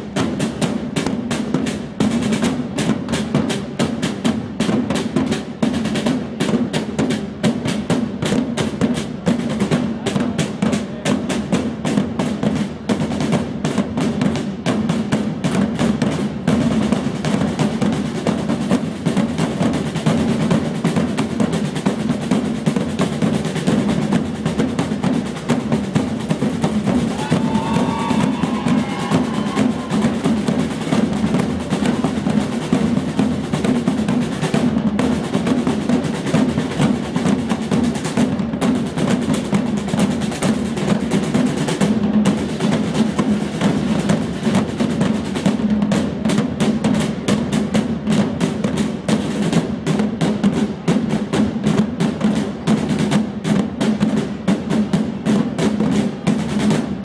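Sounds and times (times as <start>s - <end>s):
snare drums rolling: 0.0s - 57.0s.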